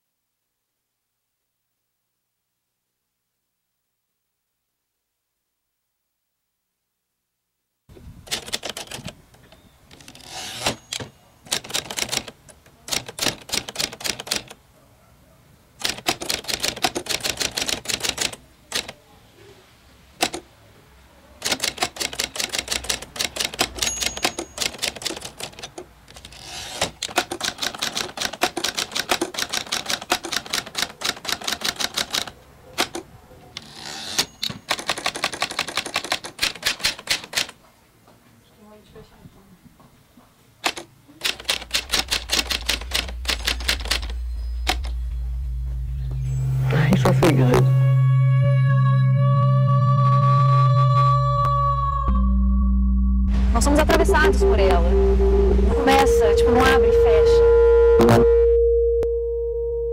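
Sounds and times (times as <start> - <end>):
typewriter keystrokes: 8.3 - 9.2, 9.9 - 14.6, 15.8 - 19.0, 20.2 - 20.4, 21.4 - 33.1, 34.0 - 37.6, 40.6 - 45.0.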